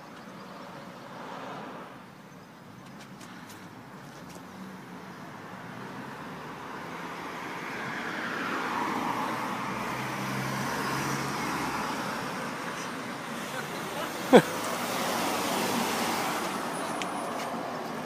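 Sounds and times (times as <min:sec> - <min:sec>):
car driving past: 0:06.8 - 0:17.6.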